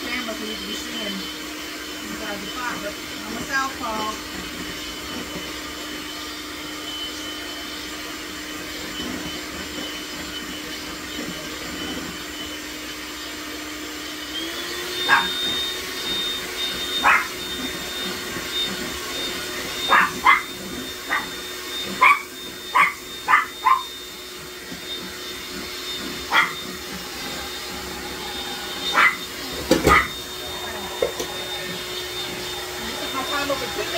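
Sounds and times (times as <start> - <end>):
electric hand mixer whirring: 0.0 - 33.9
small dog yipping: 15.0 - 15.4, 17.0 - 17.3, 19.8 - 21.4, 22.0 - 24.0, 26.2 - 26.6, 28.9 - 30.2.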